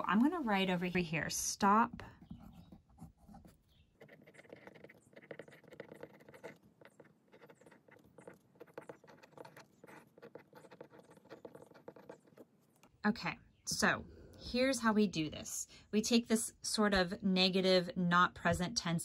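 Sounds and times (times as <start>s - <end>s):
pen scratching on paper: 2.2s - 12.9s.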